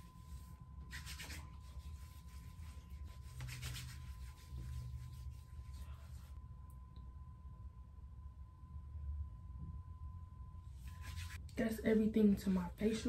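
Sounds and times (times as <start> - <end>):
low steady hum: 0.0 - 13.0
hands rubbing skin: 0.1 - 6.4, 10.8 - 11.4.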